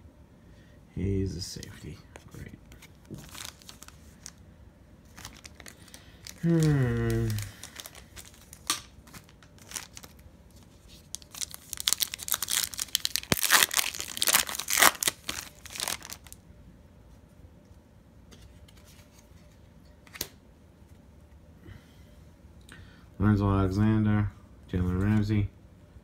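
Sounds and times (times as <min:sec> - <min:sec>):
wrapper crinkling and tearing: 0:02.8 - 0:04.4, 0:05.0 - 0:16.4.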